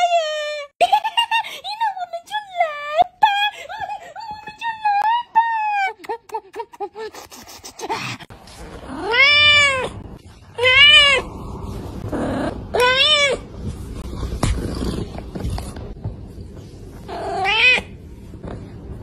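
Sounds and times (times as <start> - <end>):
cat meowing: 17.1 - 18.0.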